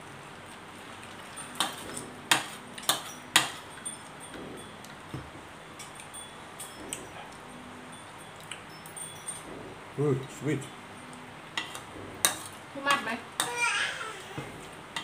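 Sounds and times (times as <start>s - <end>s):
utensils clinking on ceramic bowls: 1.1s - 5.2s, 5.8s - 9.5s.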